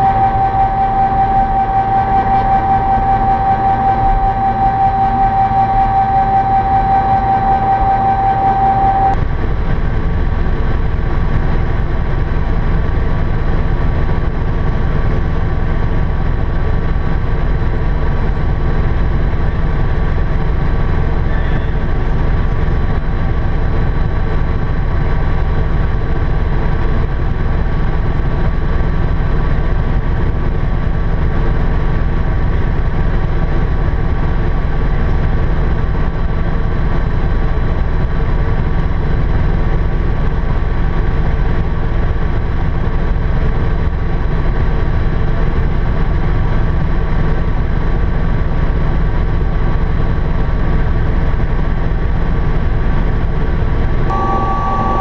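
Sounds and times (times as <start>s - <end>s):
steady high tone: 0.0s - 9.2s, 54.1s - 55.0s
helicopter engine and rotor noise: 0.0s - 55.0s.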